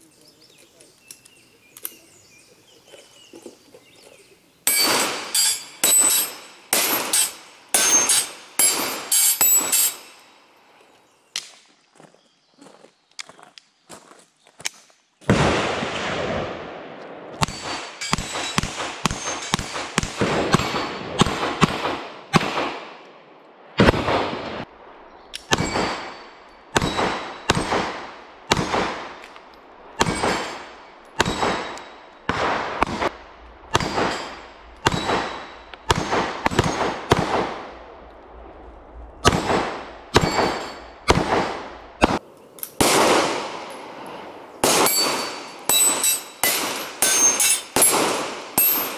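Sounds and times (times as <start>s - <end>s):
pistol shots: 4.7s - 10.2s, 15.3s - 23.0s, 23.8s - 24.7s, 25.4s - 29.4s, 30.0s - 37.9s, 39.2s - 48.9s
ringing ping of steel targets: 4.7s - 10.3s, 17.4s - 21.0s, 25.4s - 27.7s, 30.0s - 32.3s, 33.7s - 36.8s, 40.1s - 41.6s, 44.6s - 48.9s.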